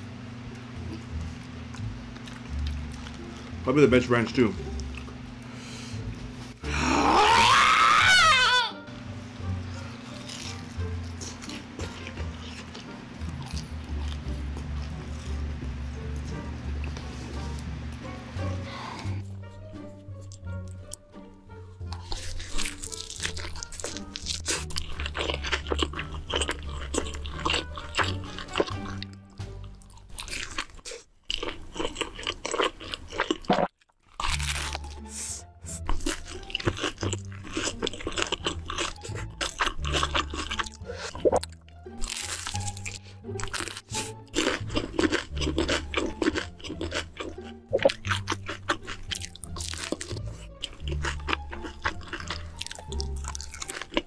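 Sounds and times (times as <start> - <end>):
crunching and chewing food: 0.4 - 8.6, 9.6 - 54.0
background music with bass line: 8.8 - 30.1.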